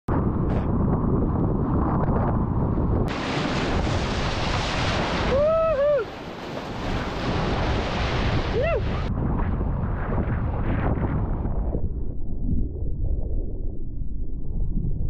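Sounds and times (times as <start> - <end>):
wind buffeting microphone: 0.1 - 15.0
breaking wave and spray: 3.1 - 9.1
person whooping shout: 5.3 - 6.1, 8.5 - 9.1.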